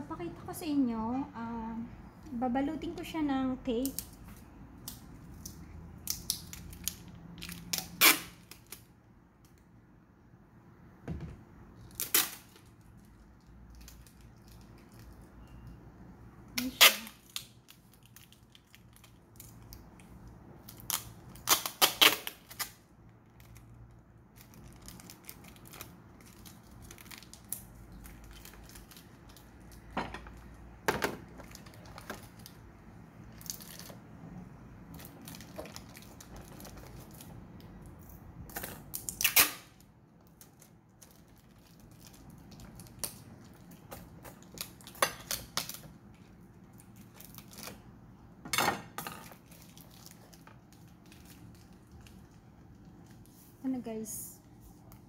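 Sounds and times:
packing tape ripping off roll: 0:06.0 - 0:08.9, 0:11.8 - 0:12.8, 0:16.6 - 0:19.8, 0:20.6 - 0:23.7, 0:38.5 - 0:43.3.

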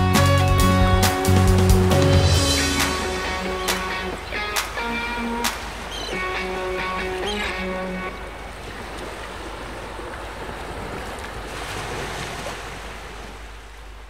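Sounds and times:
held music notes: 0:00.0 - 0:08.3
sea waves: 0:00.0 - 0:14.0
wind: 0:00.0 - 0:14.0.

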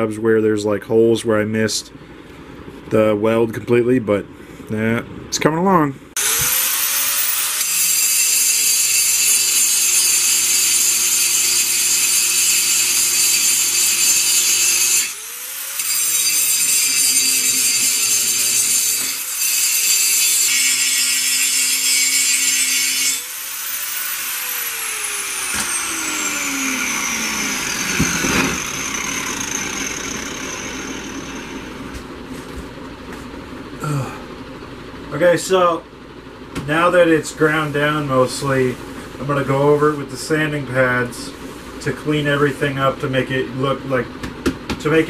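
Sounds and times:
angle grinder grinding steel: 0:06.2 - 0:32.0
grinder winding down: 0:06.2 - 0:32.0.

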